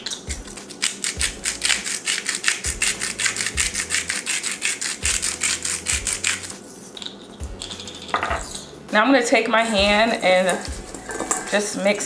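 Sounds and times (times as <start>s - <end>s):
salt grinder clicking: 0.0s - 8.1s.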